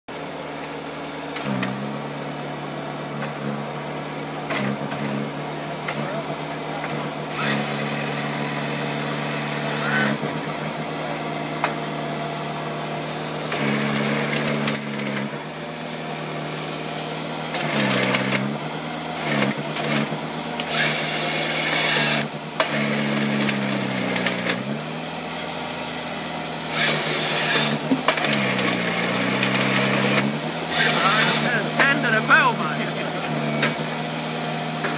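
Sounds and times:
sawing and crackling wood: 0:03.0 - 0:06.2, 0:06.8 - 0:12.0, 0:13.4 - 0:25.8, 0:26.5 - 0:34.9
harvester engine under load: 0:13.4 - 0:15.6, 0:16.8 - 0:24.8, 0:26.7 - 0:34.9.

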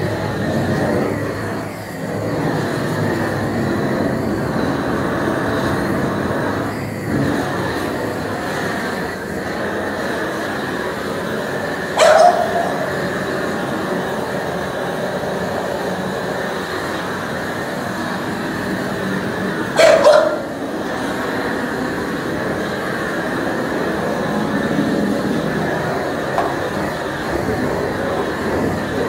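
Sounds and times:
steady rushing noise: 0:00.0 - 0:29.0
dog barking: 0:12.0 - 0:12.9, 0:19.8 - 0:20.6.

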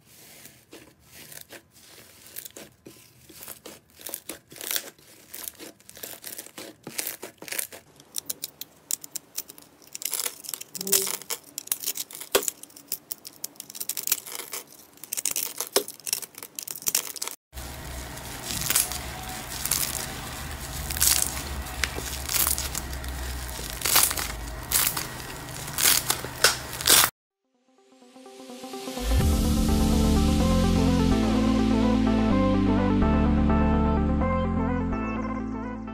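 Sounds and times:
low steady hum: 0:17.6 - 0:27.1
blade slicing crunchy block: 0:18.4 - 0:27.1.

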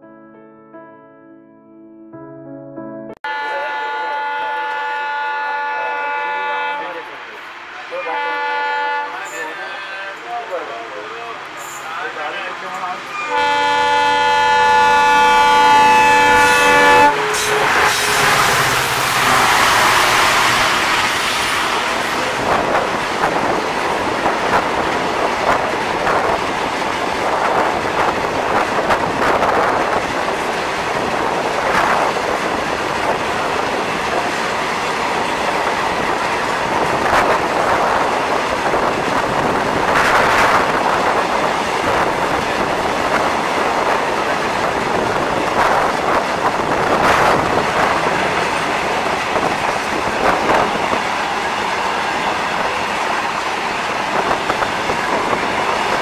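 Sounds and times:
train wheels rolling on rails: 0:09.2 - 0:56.0.

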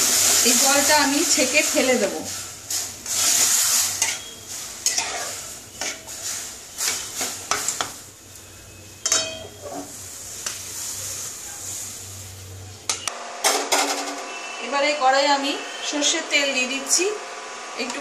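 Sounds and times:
spatula scraping metal pan: 0:02.7 - 0:07.8
faint sizzling hiss: 0:09.6 - 0:13.0.

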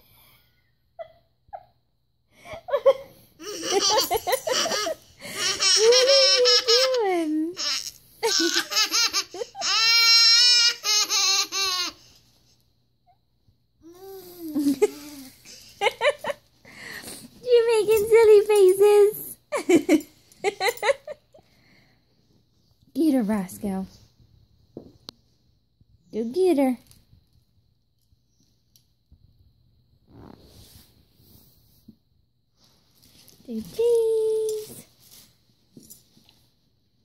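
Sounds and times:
baby laughing: 0:03.4 - 0:12.1.

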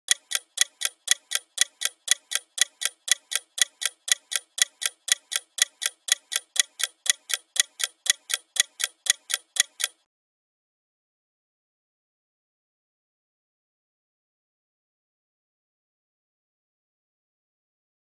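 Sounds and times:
timer ticking: 0:00.1 - 0:10.1.

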